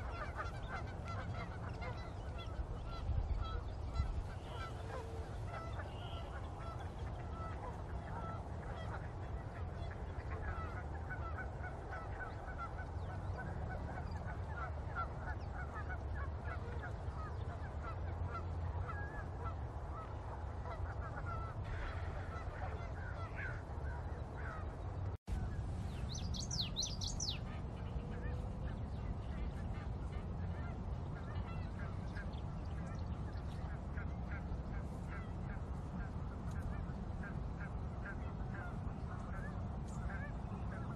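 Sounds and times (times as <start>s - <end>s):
steady low rumble: 0.0s - 40.9s.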